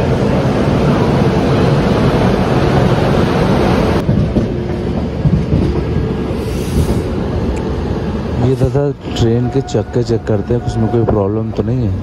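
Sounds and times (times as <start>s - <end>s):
wheels clacking on rails: 4.0s - 6.9s.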